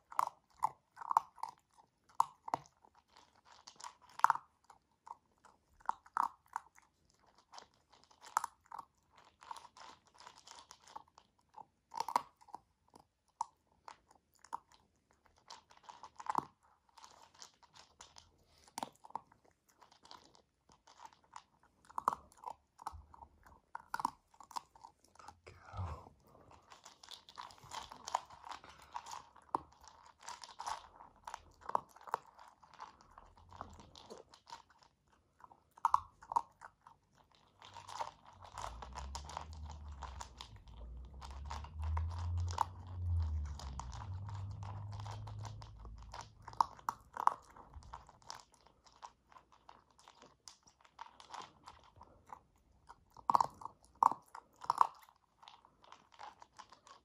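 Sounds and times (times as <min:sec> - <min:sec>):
puppy crunching dry kibble: 0:00.0 - 0:57.0
low rumble: 0:39.2 - 0:46.6.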